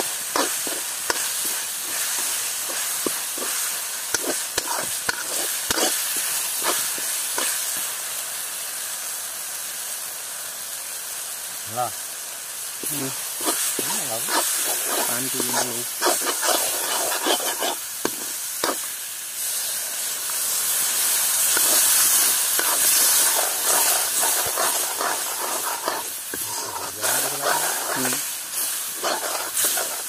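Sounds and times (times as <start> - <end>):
metal spoon scraping a pan: 0.0 - 7.6, 13.4 - 18.9, 21.4 - 30.0
food frying in a pan: 0.0 - 30.0
steam hissing and sizzling: 0.0 - 30.0.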